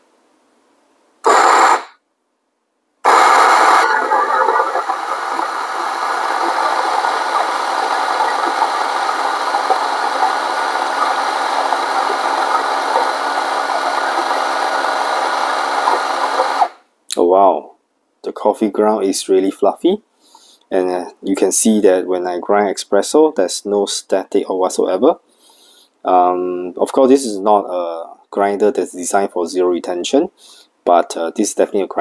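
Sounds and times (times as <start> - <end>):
coffee grinder grinding beans: 1.3 - 1.9, 3.1 - 16.8.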